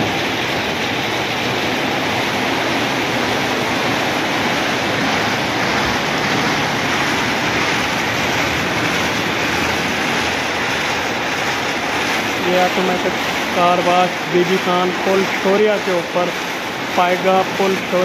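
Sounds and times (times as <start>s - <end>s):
water spraying: 0.0s - 18.0s
car wash brushes scrubbing: 4.6s - 18.0s.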